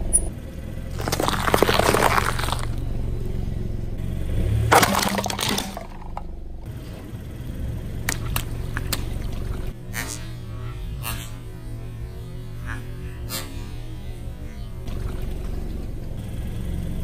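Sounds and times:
car engine hum: 0:00.0 - 0:17.0
sharp cracks: 0:00.9 - 0:02.8, 0:04.7 - 0:06.3
tyre crushing brittle items: 0:00.9 - 0:02.8, 0:04.7 - 0:06.2.

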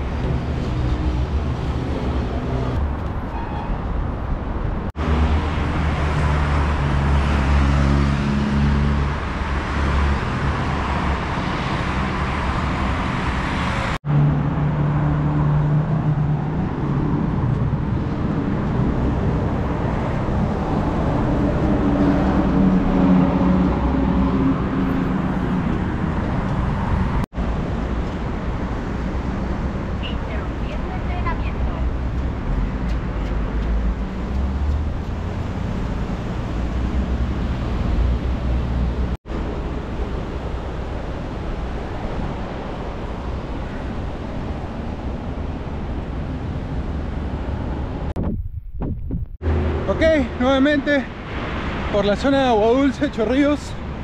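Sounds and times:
cars driving past: 0:04.9 - 0:48.1, 0:49.4 - 0:54.0.

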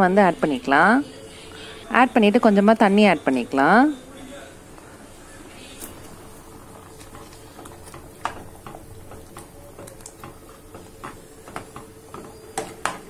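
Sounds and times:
ladle knocking on pan: 0:07.0 - 0:13.0.

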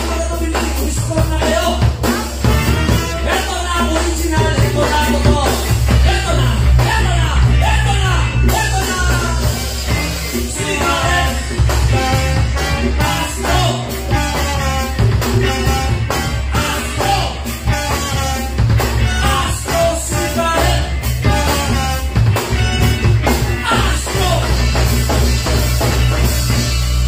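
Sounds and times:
man singing: 0:00.0 - 0:24.8
conga drums: 0:00.0 - 0:27.0
drum kit: 0:00.0 - 0:27.0
electric guitar: 0:00.0 - 0:27.0
trombone: 0:00.0 - 0:27.0
saxophone: 0:01.8 - 0:03.8, 0:09.6 - 0:27.0.

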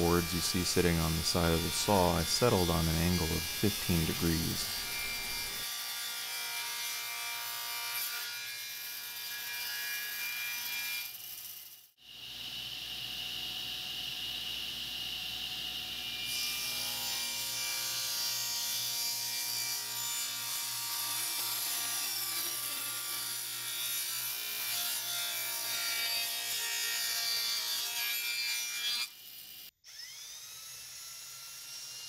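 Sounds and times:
saw blade hissing in wood: 0:00.0 - 0:05.6
table saw motor hum: 0:00.0 - 0:05.6, 0:29.9 - 0:31.9
small motor whine: 0:01.2 - 0:05.7, 0:29.1 - 0:30.9.

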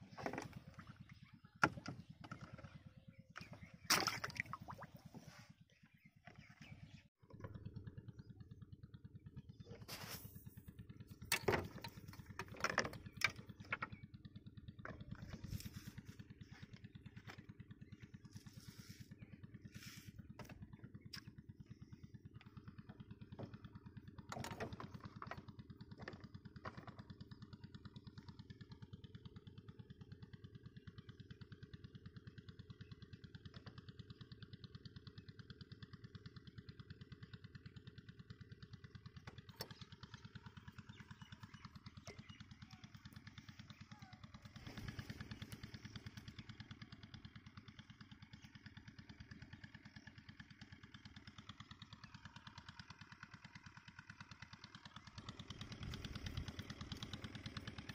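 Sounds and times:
small engine droning: 0:00.0 - 0:57.9
fishing tackle clicks and knocks: 0:11.3 - 0:14.0.

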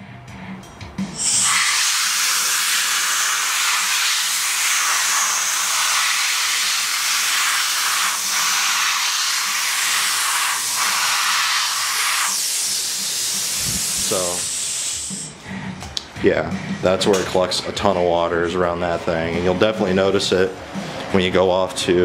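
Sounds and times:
compressed air blow gun hissing: 0:01.1 - 0:15.4.

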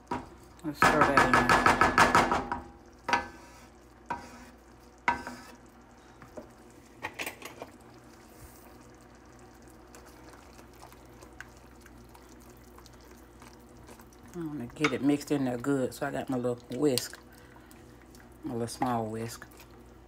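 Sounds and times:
sauce simmering: 0:00.0 - 0:20.0
wooden spoon knocking against pan: 0:00.1 - 0:03.3.

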